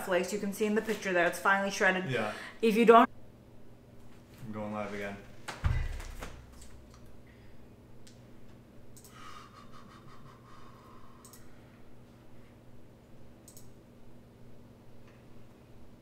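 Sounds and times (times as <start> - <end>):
low electrical hum: 0.0 - 16.0
computer mouse clicks: 9.0 - 9.2, 11.2 - 11.5, 13.4 - 13.8.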